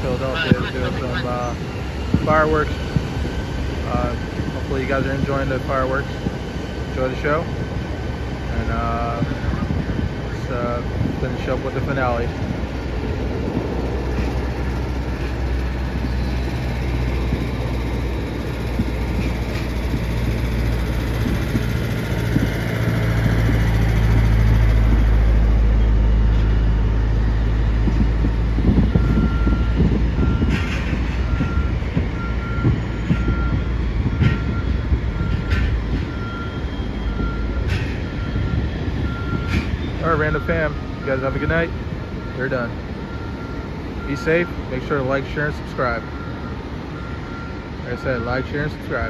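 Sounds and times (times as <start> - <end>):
jet engines rumbling: 0.0 - 49.0
backup alarm beeping: 28.7 - 30.6, 31.3 - 44.6.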